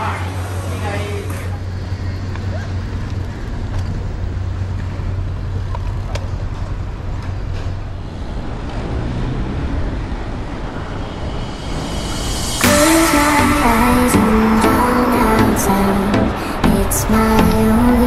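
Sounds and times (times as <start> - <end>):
cars passing: 0.0 - 18.0
low hum: 0.0 - 18.0
motorcycle passing: 0.6 - 18.0.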